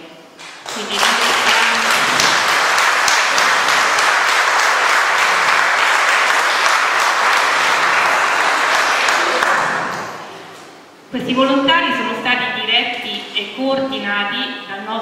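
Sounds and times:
audience applauding: 0.5s - 10.4s.

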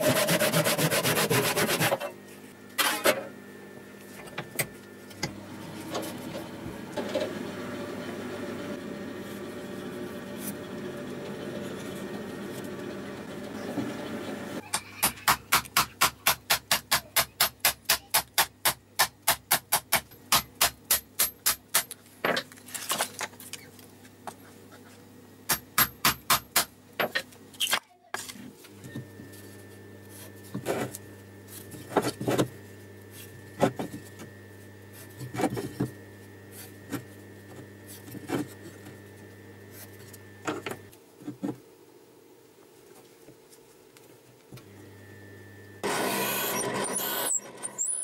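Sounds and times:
steady hum: 28.2s - 47.3s.

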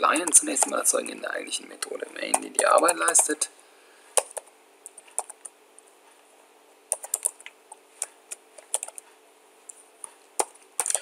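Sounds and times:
typing on computer keyboard: 2.2s - 3.4s, 4.2s - 5.6s, 6.9s - 9.0s, 10.4s - 11.0s.

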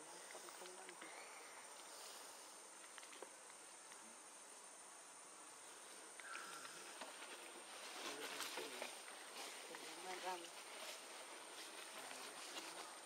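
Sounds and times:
steady hiss: 0.0s - 13.0s
faint chirp: 5.6s - 7.0s.

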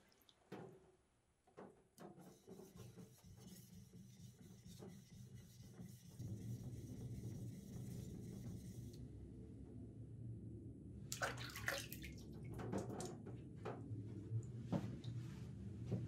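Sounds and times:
steady low hum: 2.6s - 11.2s, 13.2s - 16.0s
water splashing and dripping: 11.1s - 13.2s.

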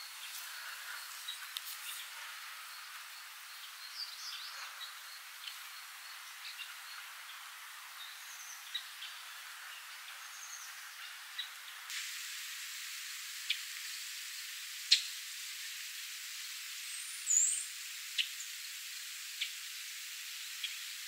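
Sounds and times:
small birds chirping: 0.0s - 11.9s, 16.8s - 18.8s
rain hissing on grass: 0.0s - 21.0s.

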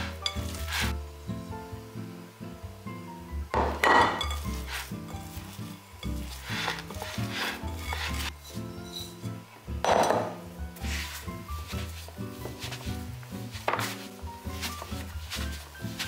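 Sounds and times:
hands squishing dough: 0.0s - 1.0s, 4.1s - 8.6s, 10.7s - 16.0s
background music: 0.0s - 16.0s.

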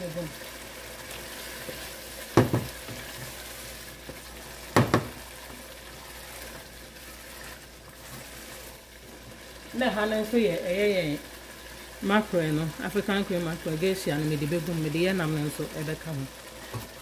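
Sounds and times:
stew sizzling in a pot: 0.0s - 17.0s
wooden spoon clunking on pot: 4.0s - 5.2s.

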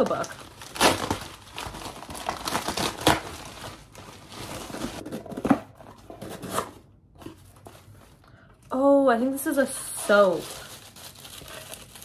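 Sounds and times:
plastic bag crinkling and tearing: 0.0s - 5.1s, 10.0s - 12.0s.

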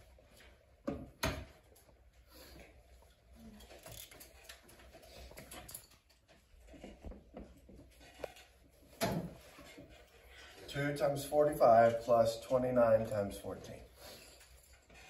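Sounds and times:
faint clicks and rustles: 1.4s - 10.8s.

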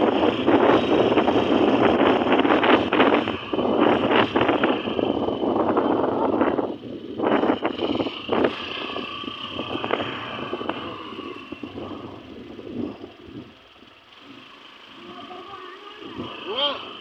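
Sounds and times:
wind buffeting microphone: 0.0s - 14.0s, 16.0s - 17.0s
motorbike engine: 0.0s - 17.0s
road noise: 0.0s - 17.0s.

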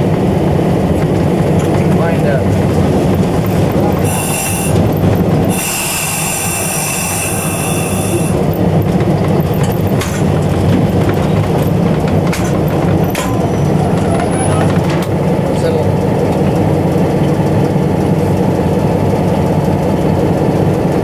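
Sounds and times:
diesel engine droning: 0.0s - 21.0s
wheels clicking over rail joints: 0.0s - 21.0s
train wheels squealing: 4.0s - 8.4s, 13.2s - 14.8s.

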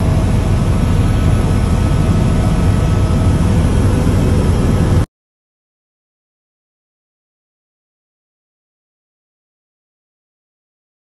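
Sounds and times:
low rumble of moving vehicle: 0.0s - 5.1s.

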